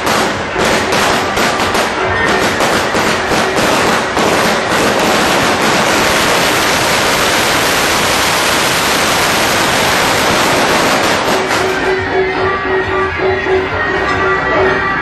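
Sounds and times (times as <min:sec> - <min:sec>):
firecrackers crackling: 0:00.0 - 0:12.1.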